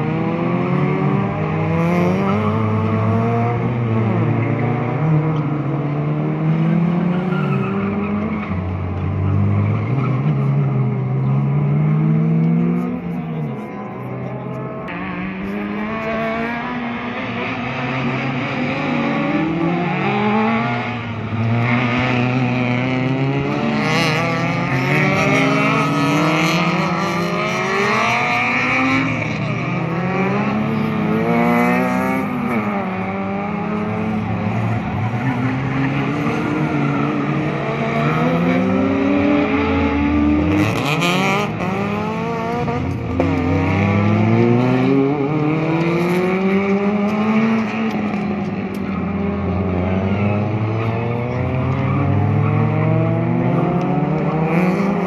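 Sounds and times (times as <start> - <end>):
race car engines revving: 0.0 - 55.0
tyre squeal: 7.1 - 8.6.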